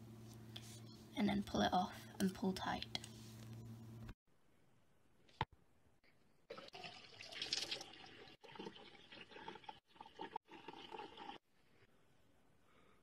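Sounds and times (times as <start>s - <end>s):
water running and splashing: 6.6s - 11.4s.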